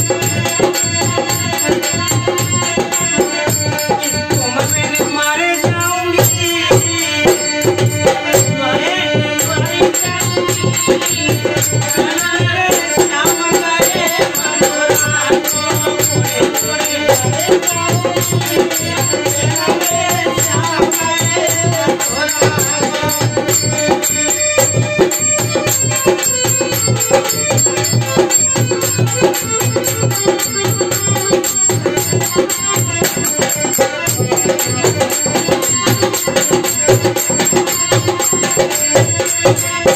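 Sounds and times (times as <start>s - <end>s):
harmonium: 0.0s - 39.9s
men singing: 0.0s - 39.9s.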